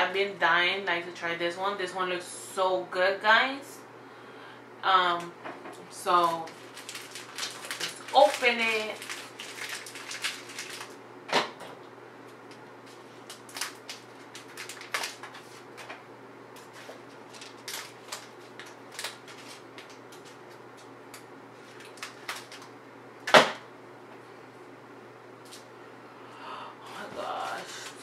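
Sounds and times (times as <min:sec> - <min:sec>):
snack packaging crinkling: 0:06.1 - 0:11.0, 0:12.4 - 0:15.9, 0:16.6 - 0:22.7
packaging cracking: 0:06.2 - 0:11.0, 0:13.2 - 0:15.6, 0:16.6 - 0:20.4, 0:21.1 - 0:22.7.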